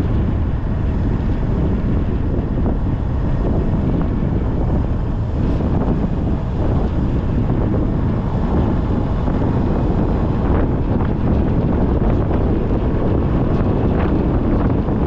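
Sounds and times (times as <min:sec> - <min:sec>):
vehicle rumble: 0:00.0 - 0:15.0
wind buffeting microphone: 0:00.0 - 0:15.0.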